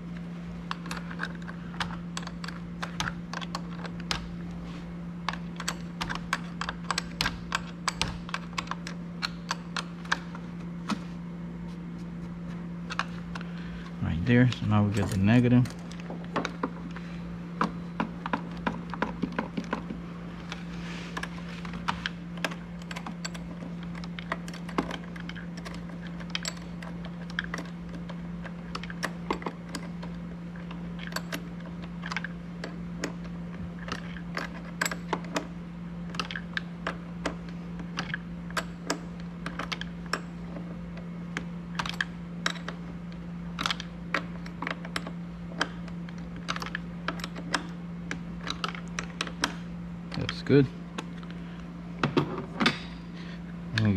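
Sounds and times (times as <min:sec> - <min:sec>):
steady low hum: 0:00.0 - 0:53.9
wrench and metal parts clicking: 0:00.7 - 0:04.3, 0:05.3 - 0:10.2, 0:22.0 - 0:33.2.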